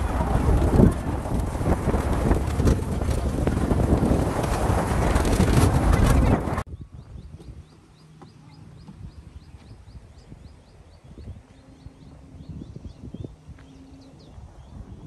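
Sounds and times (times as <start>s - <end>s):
wind buffeting microphone: 0.0s - 15.0s
bird chirping: 6.7s - 15.0s.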